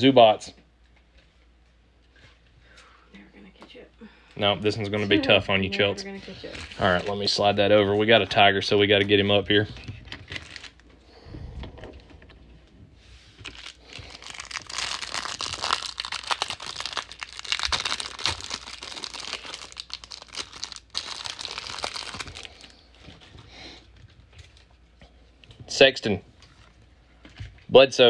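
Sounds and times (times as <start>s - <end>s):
plastic wrapper crinkling: 6.2s - 7.6s, 9.0s - 11.0s, 13.3s - 23.3s.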